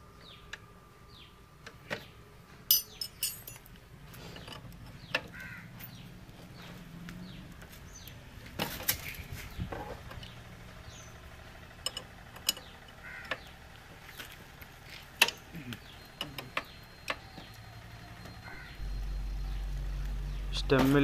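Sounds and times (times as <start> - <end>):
birds calling: 0.1 - 21.0
spanner clinking on metal nut: 2.7 - 3.7, 11.8 - 12.7.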